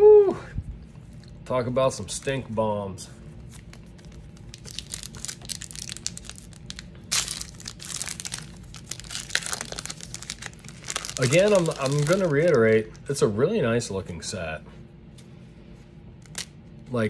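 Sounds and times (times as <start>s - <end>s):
foil wrapper crinkling and tearing: 3.5s - 12.9s, 16.2s - 16.5s.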